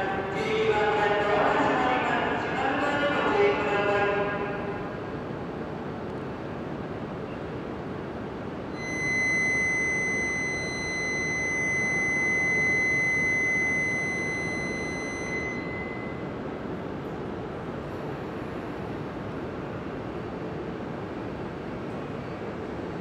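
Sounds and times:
low platform noise: 0.0 - 23.0
high-pitched departure buzzer: 8.8 - 16.2.

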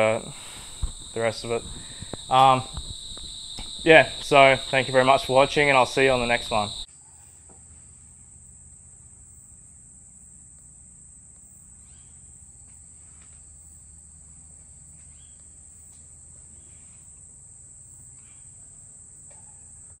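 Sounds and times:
insects buzzing: 0.0 - 6.9.

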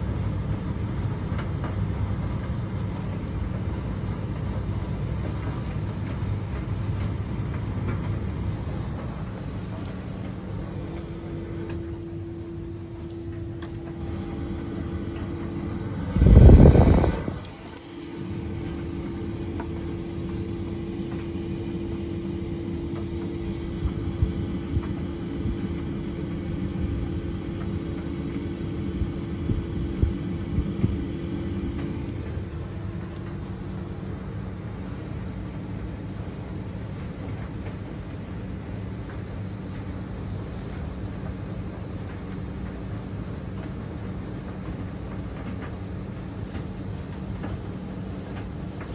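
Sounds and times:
light clicks of tumbling load: 0.0 - 48.9
tumble dryer motor hum: 0.0 - 48.9
drum rumbling: 6.9 - 35.1
loud burst of noise: 13.6 - 18.6.

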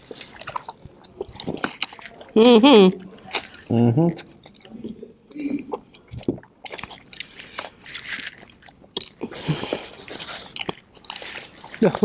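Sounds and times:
wet chewing and lip-smacking: 0.0 - 12.0
small crunches: 6.6 - 12.0.

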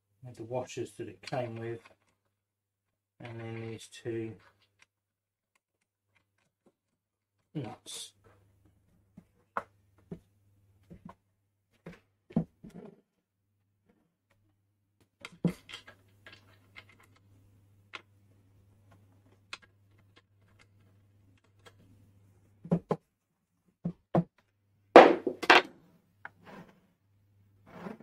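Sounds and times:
knocks on wood: 25.0 - 25.6.

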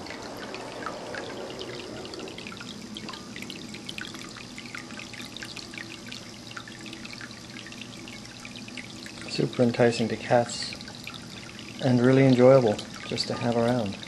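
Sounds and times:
water trickling into bowl: 0.0 - 14.0.

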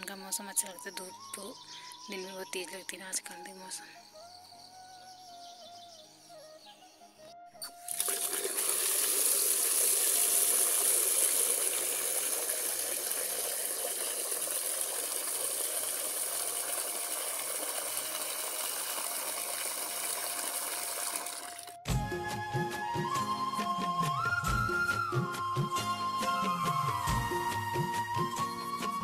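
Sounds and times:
water pouring into plastic bucket: 7.8 - 21.9.

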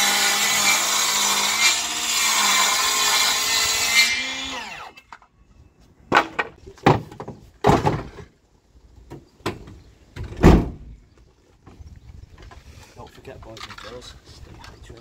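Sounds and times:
heavy thud: 10.3 - 10.9.

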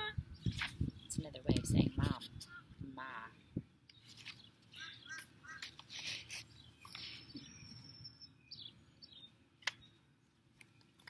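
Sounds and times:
birds chirping: 0.0 - 11.0
book pages rustling: 4.0 - 4.5, 5.6 - 7.3.

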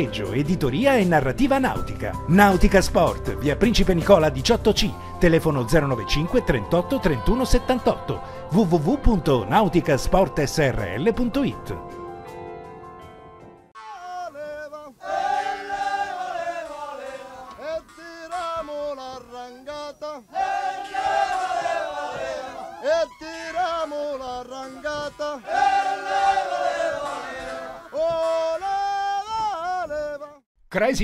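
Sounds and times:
person singing wavering phrases: 13.8 - 15.2, 21.9 - 25.6.

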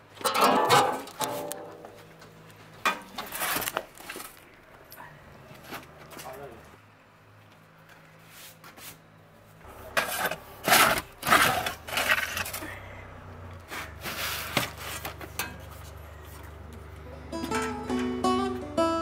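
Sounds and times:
metal peel scraping oven floor: 3.1 - 3.8, 9.7 - 12.6, 13.7 - 15.8.

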